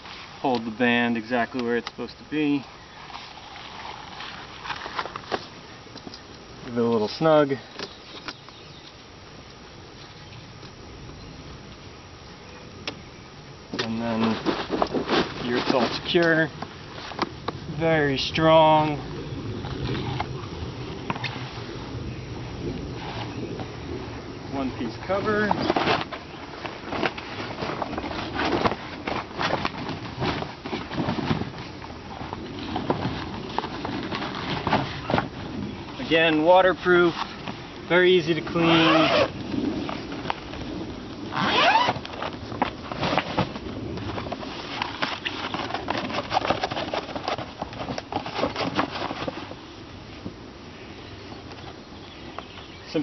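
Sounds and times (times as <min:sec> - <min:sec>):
plastic fabric cover rustling: 0:02.5 - 0:05.6, 0:13.9 - 0:17.3, 0:24.6 - 0:49.6.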